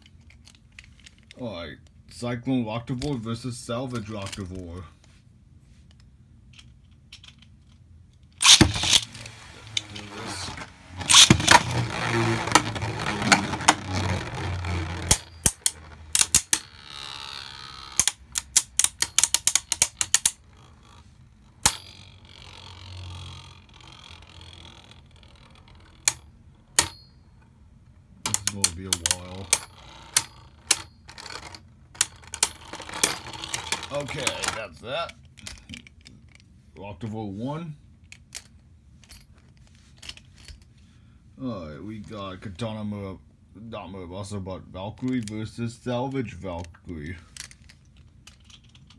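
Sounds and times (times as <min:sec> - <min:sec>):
plastic clacks of colliding tops: 0:08.4 - 0:20.4
spinning tops whirring: 0:08.4 - 0:26.2.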